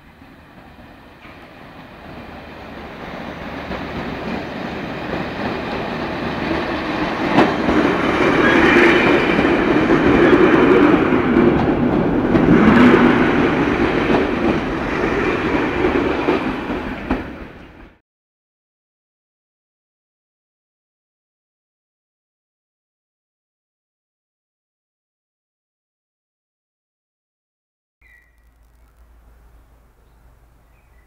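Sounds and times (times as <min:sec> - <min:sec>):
wheels clicking on track: 0:00.0 - 0:17.9
electric train passing: 0:00.0 - 0:18.0, 0:28.3 - 0:31.0.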